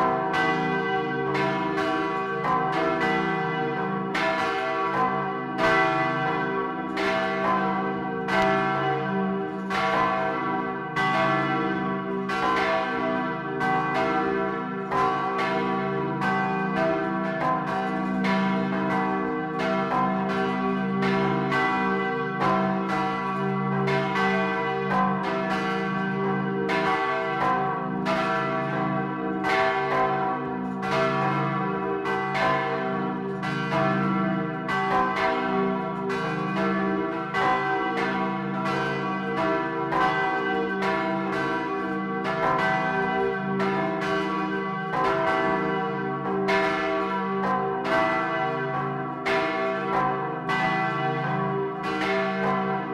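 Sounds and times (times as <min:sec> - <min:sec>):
church bells ringing in peal: 0:00.0 - 0:52.9.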